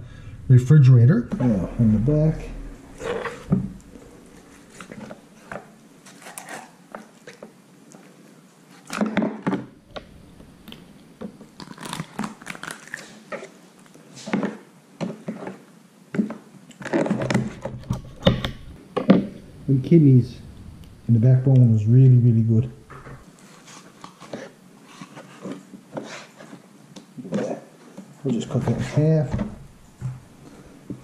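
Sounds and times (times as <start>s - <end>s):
wet tearing and crunching: 11.5s - 14.0s.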